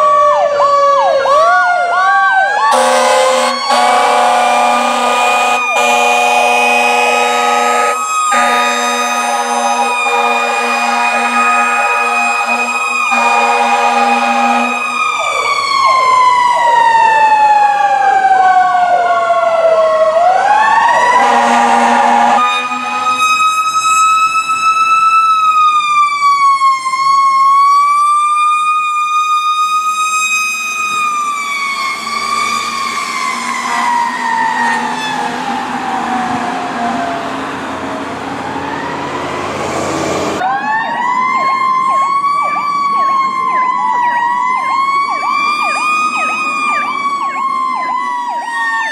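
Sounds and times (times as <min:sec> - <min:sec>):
fire truck sirens wailing: 0:00.0 - 0:48.9
horn blasts: 0:02.7 - 0:15.0, 0:21.2 - 0:23.6.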